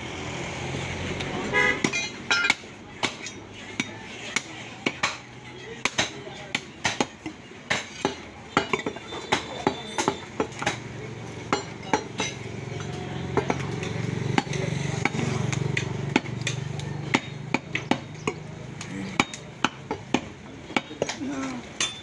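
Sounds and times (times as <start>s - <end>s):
cleaver chopping on wooden block: 14.3s - 21.2s.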